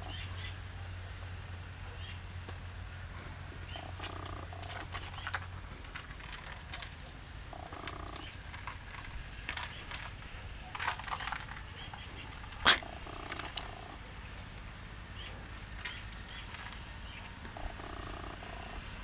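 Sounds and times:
low steady rumble: 0.0 - 19.0
cats crunching dry kibble: 3.8 - 14.6, 15.2 - 18.4.

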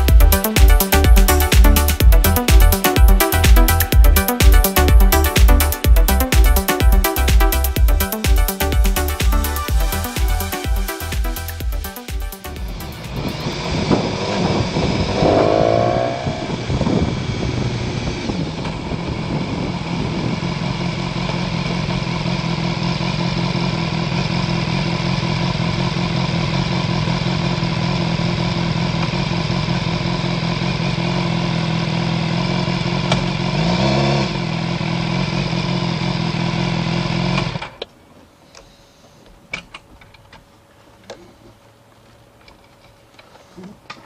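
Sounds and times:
motorcycle engine idling: 0.0 - 37.6
engine throttle blip: 12.6 - 19.0.

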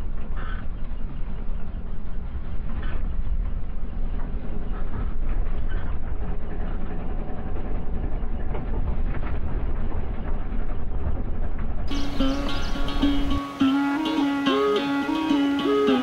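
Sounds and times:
plucked-string music: 11.9 - 16.0.

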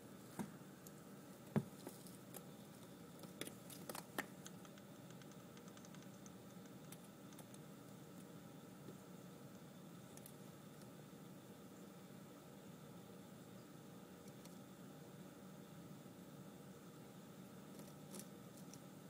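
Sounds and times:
faint steady hiss: 0.0 - 19.0.

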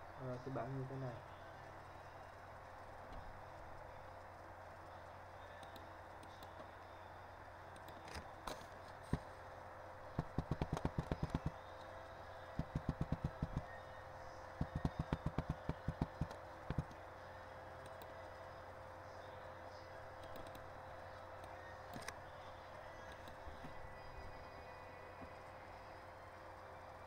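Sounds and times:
low electrical hum: 0.0 - 27.0
computer keyboard typing: 10.2 - 11.6, 12.6 - 13.8, 14.6 - 17.0, 20.2 - 20.7.

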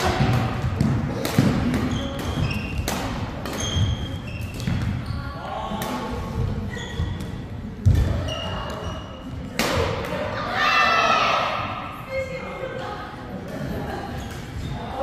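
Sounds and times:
rackets hitting shuttlecocks: 0.0 - 5.0, 9.4 - 10.3
shoes squeaking on court: 1.8 - 5.8, 6.7 - 9.4, 14.1 - 15.0.

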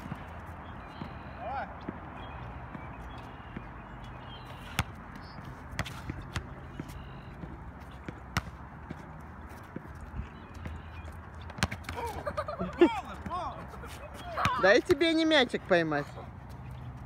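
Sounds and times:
outdoor background noise: 0.0 - 17.0
basketball thuds on hoop and asphalt: 4.7 - 9.0, 11.5 - 12.0.

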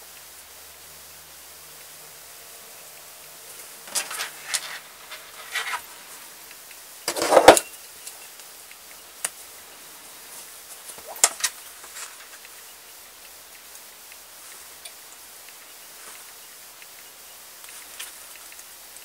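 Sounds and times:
fabric rustling: 3.5 - 6.2.

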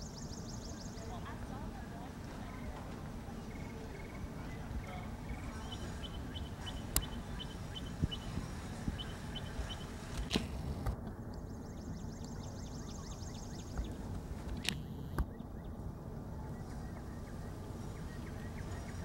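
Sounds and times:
bird chirping: 0.0 - 1.4, 3.4 - 10.1, 11.3 - 19.0
sharp clicks: 6.9 - 7.2.

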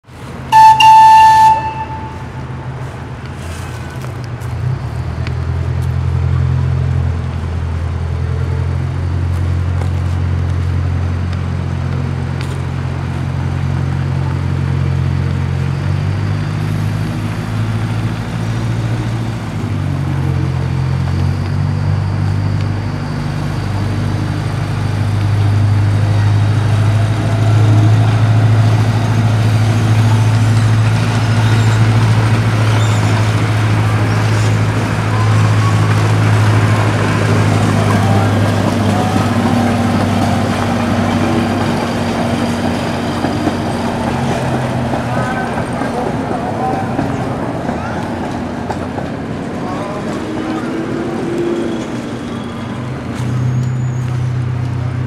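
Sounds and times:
locomotive engine humming: 0.0 - 55.0
train horn toot: 0.5 - 2.6.

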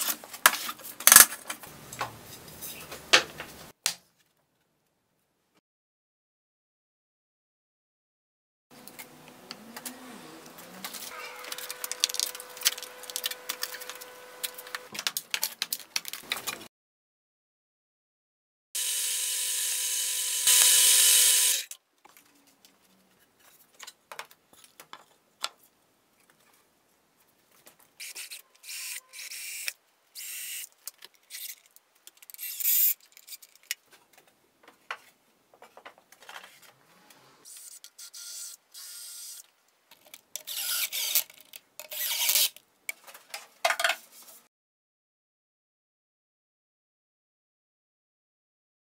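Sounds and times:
cordless drill driving screws: 18.8 - 21.7, 40.5 - 41.2
drill press boring into wood: 18.8 - 21.7
clicks and knocks handling wood: 22.0 - 26.6, 33.4 - 36.7.

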